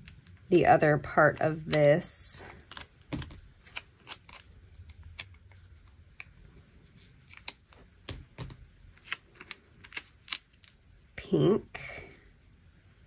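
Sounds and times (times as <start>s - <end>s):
scissors snipping paper: 1.6s - 5.4s.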